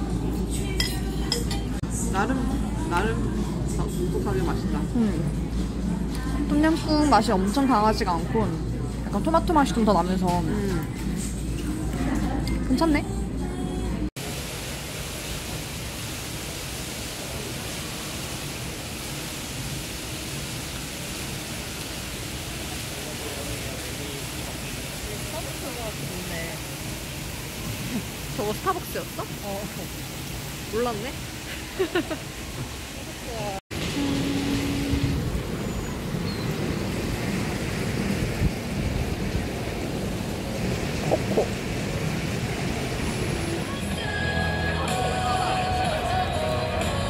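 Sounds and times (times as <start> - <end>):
shopping mall background noise: 0.0 - 14.3, 16.9 - 30.0
city background rumble: 1.8 - 46.0.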